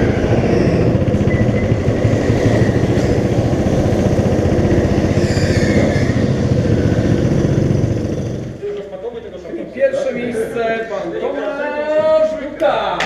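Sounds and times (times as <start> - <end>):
go-kart engine running: 0.0 - 8.8.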